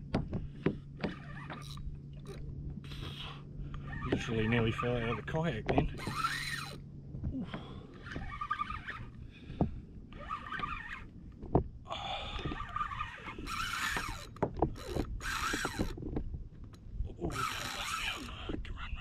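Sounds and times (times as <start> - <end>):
fishing reel whirring: 1.0 - 6.8, 7.9 - 9.2, 10.1 - 11.1, 12.3 - 16.0, 17.3 - 18.3.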